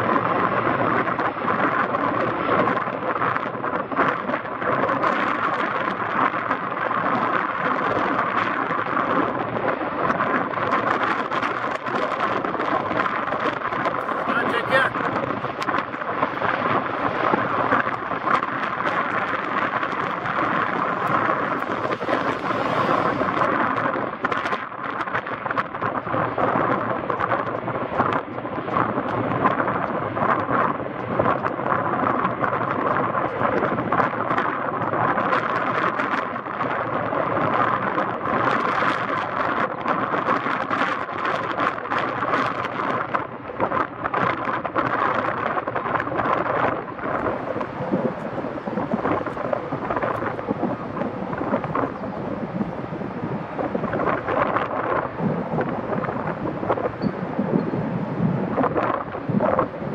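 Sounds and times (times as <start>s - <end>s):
helicopter flying: 8.5s - 26.7s, 45.4s - 59.9s.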